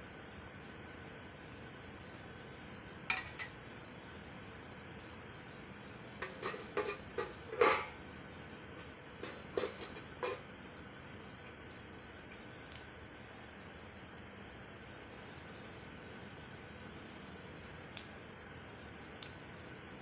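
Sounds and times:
dishes and utensils clinking: 3.1 - 3.6, 6.2 - 8.0, 8.8 - 10.5.

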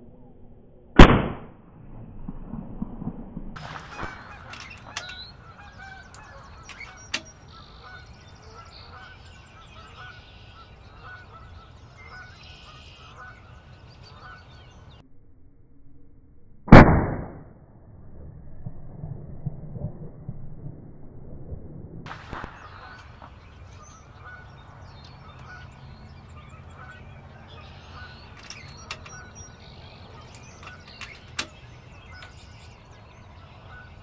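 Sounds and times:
air rifle shot: 1.0 - 1.6, 3.6 - 5.3, 16.7 - 17.5, 22.1 - 23.2
sharp clicks: 3.6 - 5.3, 6.1 - 7.4, 28.2 - 32.7
honking bird calls: 3.6 - 15.0, 22.1 - 34.0.

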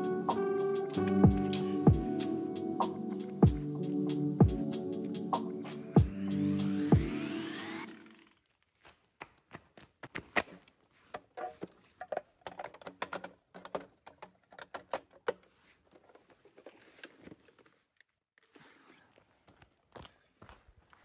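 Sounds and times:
plastic object clicking and knocking: 11.1 - 16.1.

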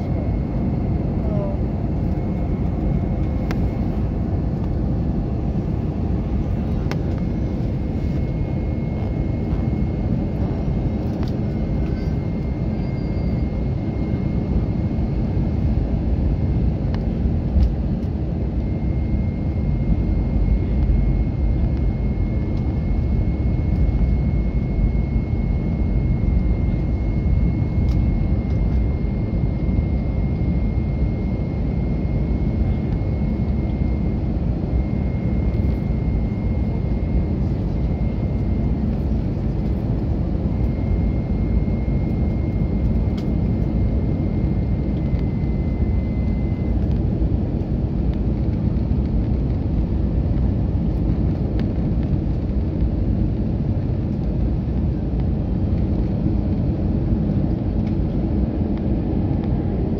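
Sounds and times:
thin high whine: 0.0 - 15.3, 18.6 - 50.0
airliner engine roar in cabin: 0.0 - 59.9.

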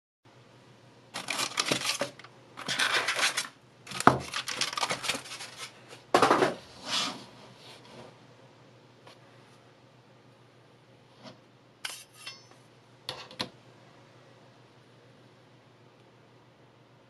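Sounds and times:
foam packaging rustling and scraping: 1.2 - 8.1.

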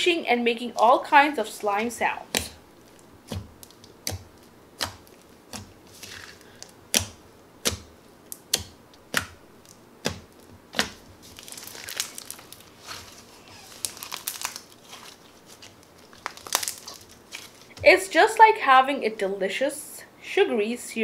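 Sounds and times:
slime crackling: 0.6 - 18.1
slime squished by hand: 1.8 - 17.9.

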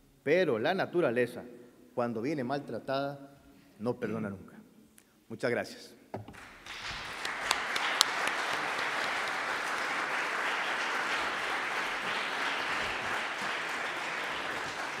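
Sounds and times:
single loud clap: 6.2 - 15.0
audience applauding: 6.3 - 15.0.

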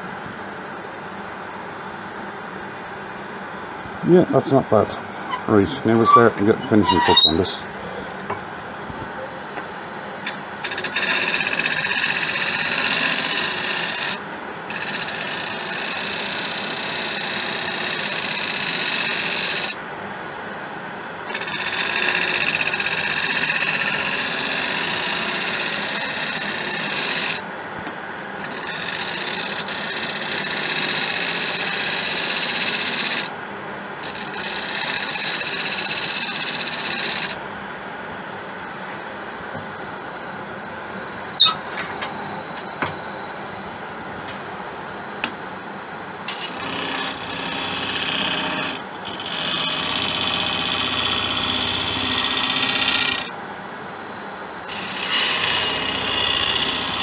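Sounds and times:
gouge cutting spinning wood: 10.2 - 19.8, 21.3 - 27.5, 28.4 - 33.3, 34.0 - 37.4, 46.3 - 53.4, 54.7 - 57.0
wood lathe running: 10.2 - 19.8, 21.2 - 27.5, 28.4 - 33.3, 34.0 - 37.4, 46.2 - 53.4, 54.7 - 57.0.

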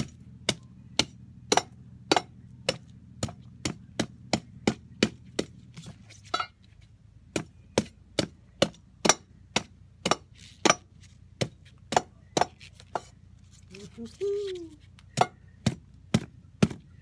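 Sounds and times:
blade knocking coconut shell: 0.0 - 5.6, 7.3 - 13.1, 15.0 - 16.8.

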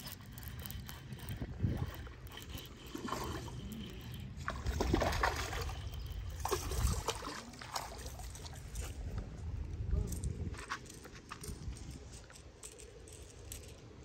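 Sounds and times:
water splashing and trickling: 0.0 - 9.7.

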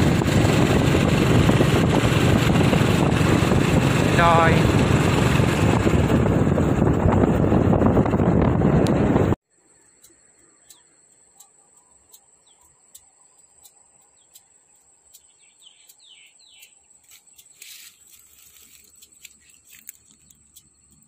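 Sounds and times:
high insect drone: 9.5 - 21.0
bird chirps: 9.8 - 21.0.

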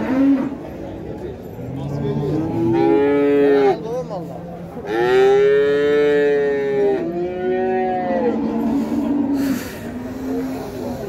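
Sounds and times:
cattle mooing: 1.7 - 3.8, 4.8 - 9.6.

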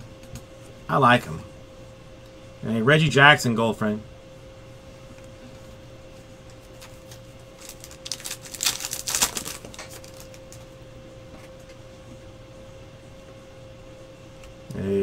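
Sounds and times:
faint steady hum: 0.0 - 15.0
trading cards clicking and rustling: 6.6 - 10.7.

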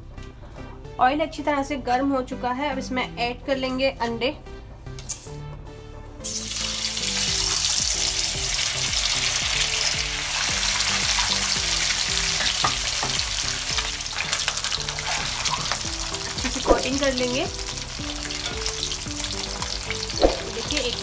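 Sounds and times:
eggs sizzling in hot oil: 6.2 - 21.0.

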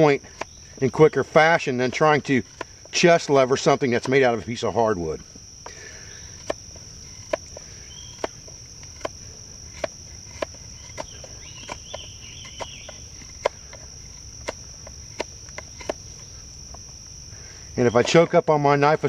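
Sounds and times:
crickets droning: 0.0 - 19.0
knife cracking wood: 5.2 - 17.1.

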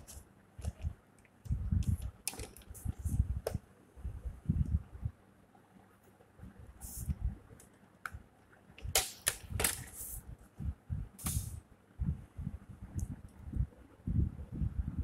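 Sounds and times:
plastic rulers knocking and sliding: 1.8 - 3.6.

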